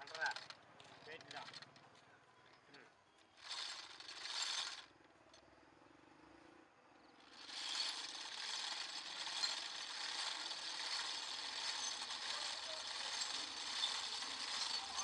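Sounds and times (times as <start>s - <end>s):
rope-twisting wheel turning: 0.0s - 1.7s, 3.3s - 5.0s, 7.2s - 15.0s.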